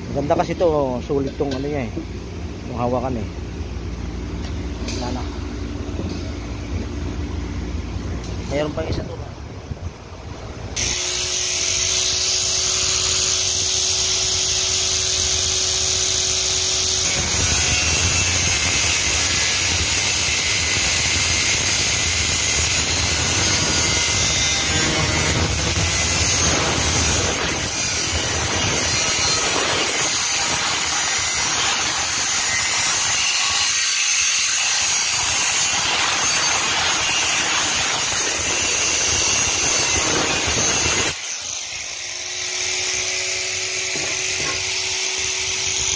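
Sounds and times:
angle grinder cutting steel: 10.8s - 45.9s.

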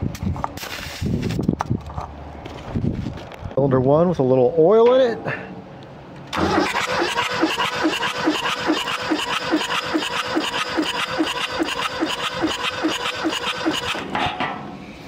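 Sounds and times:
engine starter whine: 6.3s - 14.2s.

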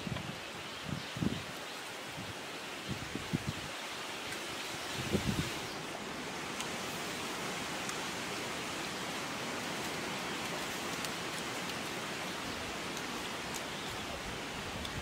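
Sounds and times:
stream water over rocks: 0.0s - 15.0s.

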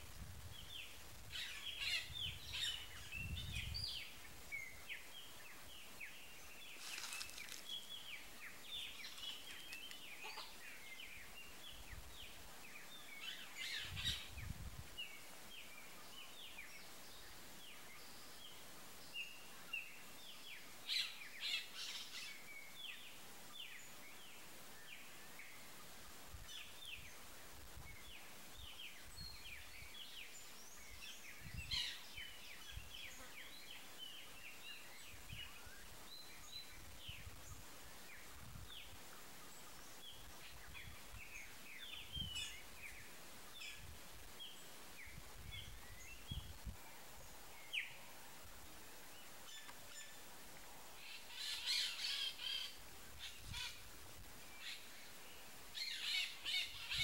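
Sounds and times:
low rumble of wind: 0.0s - 6.7s, 10.0s - 18.0s, 25.5s - 55.7s
small birds chirping: 0.0s - 57.0s.

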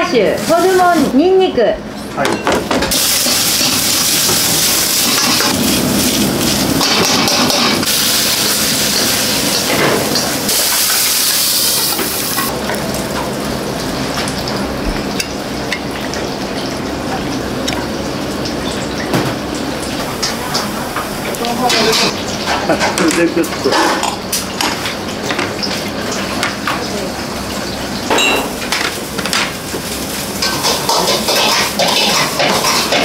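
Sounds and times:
wok hissing and sizzling: 0.0s - 1.5s, 2.9s - 33.0s
utensils and dishes clicking: 2.2s - 5.6s, 6.8s - 7.9s, 30.4s - 33.0s.

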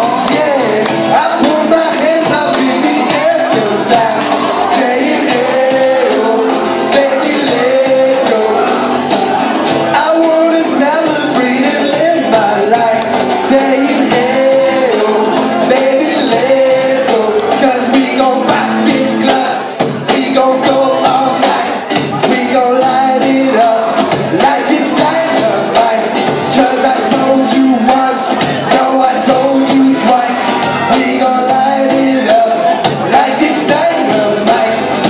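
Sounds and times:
acoustic guitar: 0.0s - 35.0s
cajon hand-drum strikes: 0.0s - 35.0s
man singing: 0.0s - 35.0s.

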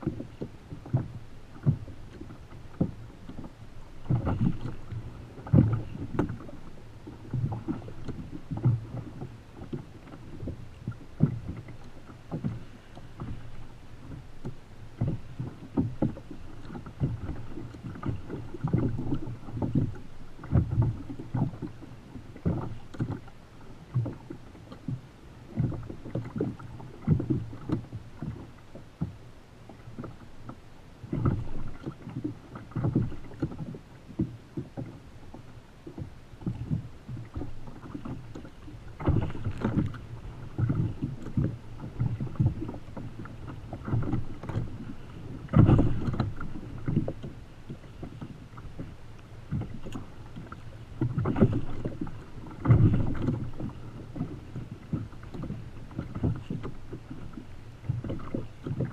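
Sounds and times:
water slapping against kayak hull: 0.0s - 58.9s.

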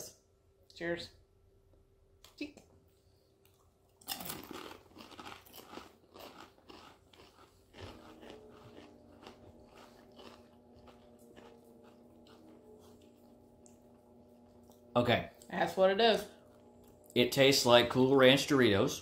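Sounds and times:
faint steady hum: 0.0s - 19.0s
people chewing crunchy chips: 3.4s - 15.5s, 16.3s - 18.4s.

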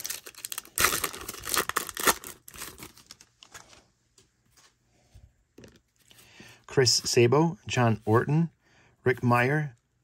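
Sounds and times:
wrapper tearing and crinkling: 0.0s - 3.4s.

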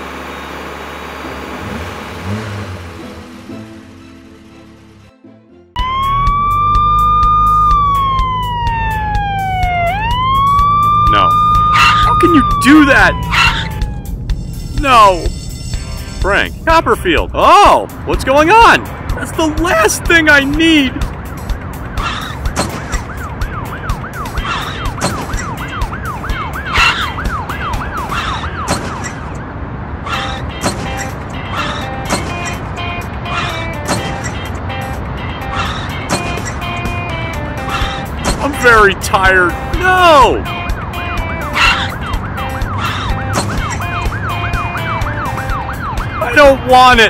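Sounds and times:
low engine hum: 0.0s - 5.1s
emergency siren yelping: 5.8s - 14.5s, 22.0s - 30.5s, 36.6s - 47.0s.

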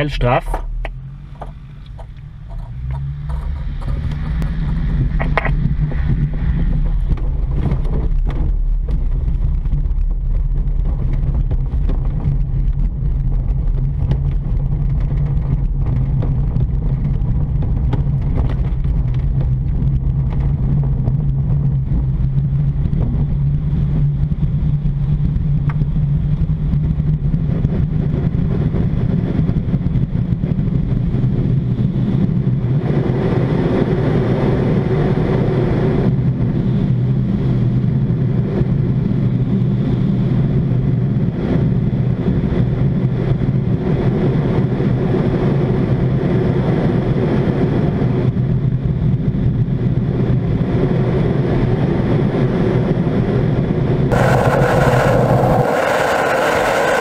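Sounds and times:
rushing air: 54.1s - 57.0s
wheel rumbling on grass: 54.1s - 57.0s.

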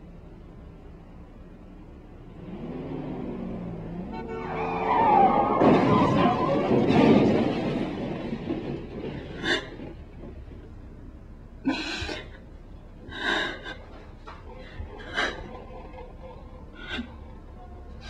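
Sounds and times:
woman sobbing and sniffling: 11.7s - 17.4s.

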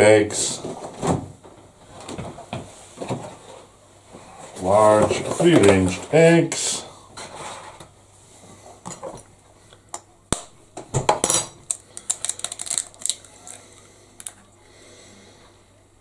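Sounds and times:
eggshell clicks and scrapes: 11.6s - 14.4s.

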